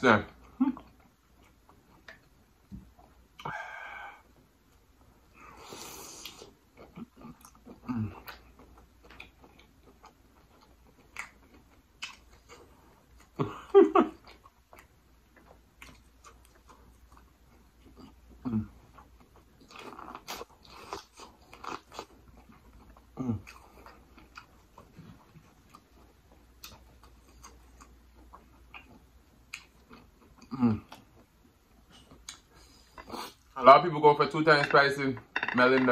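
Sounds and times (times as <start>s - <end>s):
wet chewing and biting: 6.2s - 13.4s.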